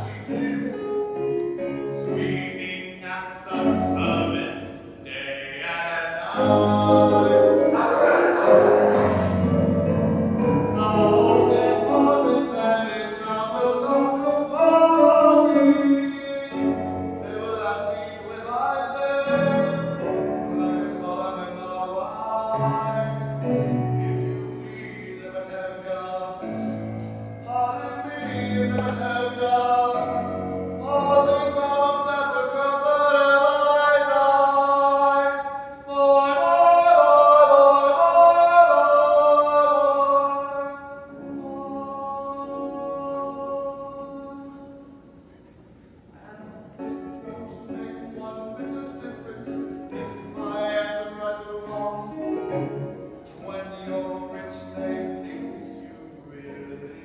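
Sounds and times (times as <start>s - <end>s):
instrumental accompaniment: 0.0s - 2.9s, 6.3s - 25.2s
man singing: 0.0s - 45.0s, 46.1s - 57.0s.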